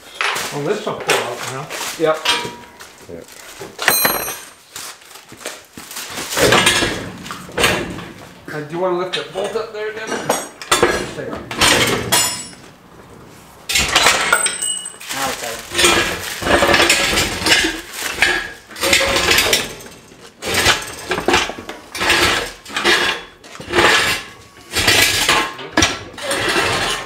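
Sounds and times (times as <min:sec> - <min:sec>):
metal parts clanking and rattling: 0:00.1 - 0:04.6, 0:05.9 - 0:08.3, 0:09.1 - 0:12.8, 0:13.7 - 0:27.0.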